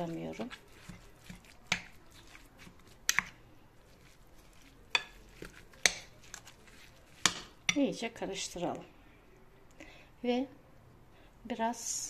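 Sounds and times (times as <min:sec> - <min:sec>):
metal fork clinking on ceramic bowl: 0:04.9 - 0:06.1.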